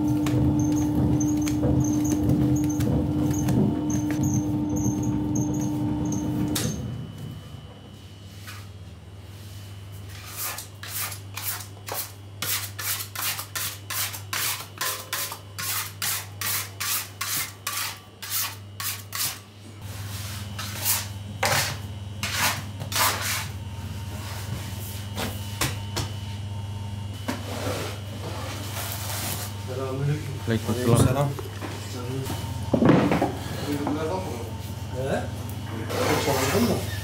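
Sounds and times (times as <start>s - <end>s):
dough mixer motor hum: 0.0s - 6.6s.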